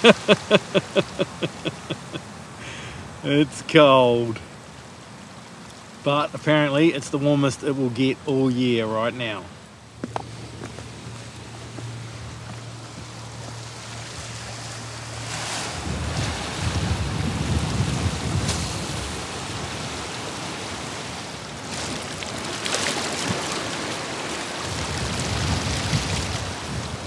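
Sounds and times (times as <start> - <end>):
sea washing on rocky shore: 0.0 - 27.0
wind buffeting microphone: 9.9 - 21.7, 24.6 - 27.0.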